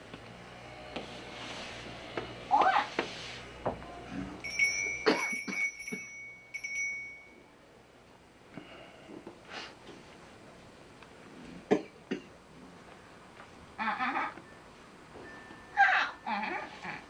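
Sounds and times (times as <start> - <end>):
small bell ringing: 4.4 - 7.6.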